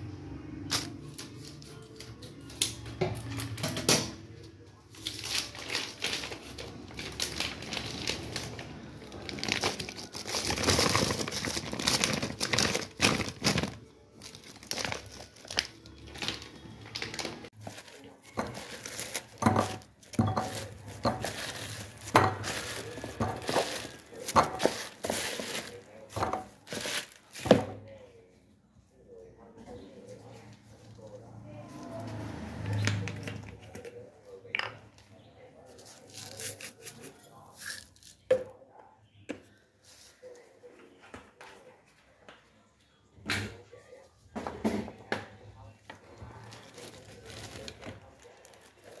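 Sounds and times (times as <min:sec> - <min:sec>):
plastic bag crinkling: 0:04.9 - 0:27.7, 0:46.2 - 0:49.0.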